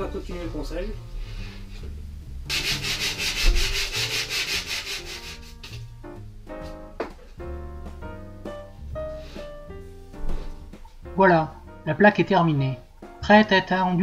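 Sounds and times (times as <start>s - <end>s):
background music: 0.0s - 14.0s
sandpaper scratching on wood: 2.5s - 5.8s.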